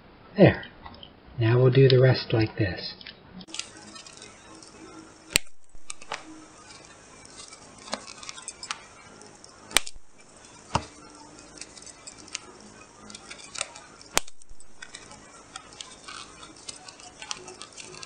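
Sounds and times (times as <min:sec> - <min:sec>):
paper rustling: 0:03.5 - 0:18.0
punch clicks: 0:05.3 - 0:06.3, 0:09.7 - 0:10.0, 0:13.5 - 0:18.0
paper punch snapping: 0:05.4 - 0:06.2, 0:09.7 - 0:10.0, 0:13.6 - 0:14.9.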